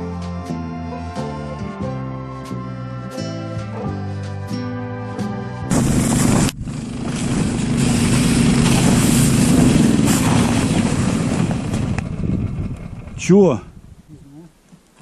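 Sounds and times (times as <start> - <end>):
small petrol engine running: 5.7 - 13.3.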